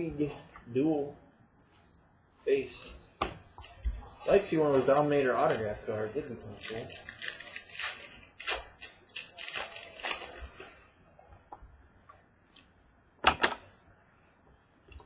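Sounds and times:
cards and wrappers rustling: 3.6 - 10.8.

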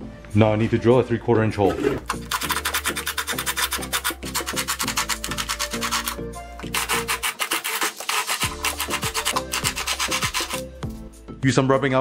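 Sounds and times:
background music: 0.0 - 12.0
cordless drill cutting sheet metal: 2.0 - 10.6.

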